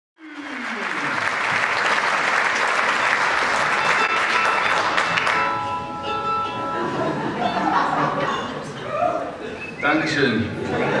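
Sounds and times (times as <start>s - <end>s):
audience applauding: 0.2s - 5.7s.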